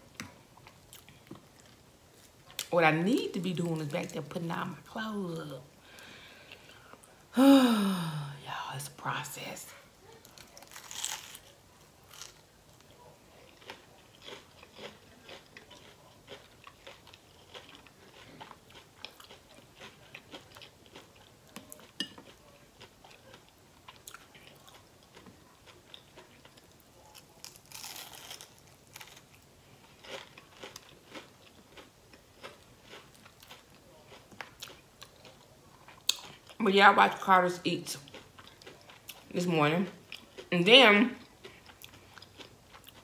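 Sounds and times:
crunching on fried food: 10.2 - 36.6, 38.0 - 40.5, 41.2 - 43.0.

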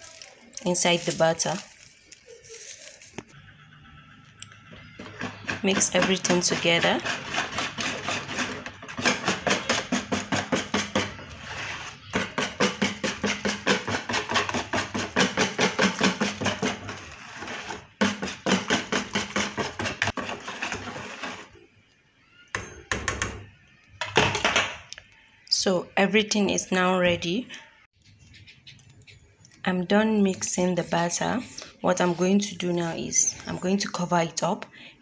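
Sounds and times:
whisk beating batter in bowl: 5.2 - 11.3, 12.2 - 21.4.

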